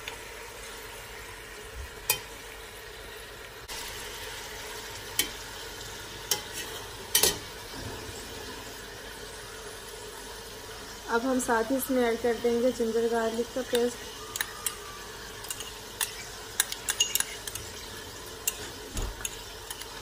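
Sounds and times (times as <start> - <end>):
meat sizzling in oil: 0.0 - 20.0
metal spoon clinking on pot: 7.1 - 7.4, 13.7 - 14.8, 15.4 - 20.0.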